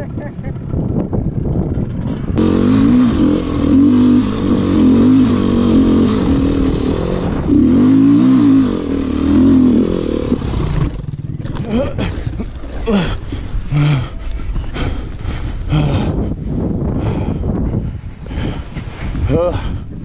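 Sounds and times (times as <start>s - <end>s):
dirt bike engine revving: 0.0s - 14.2s.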